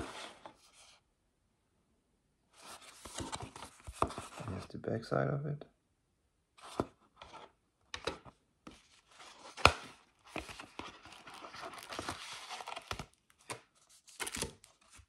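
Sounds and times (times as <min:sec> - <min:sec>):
paper and card rustling: 0:00.0 - 0:01.0, 0:02.6 - 0:04.7, 0:06.6 - 0:15.0.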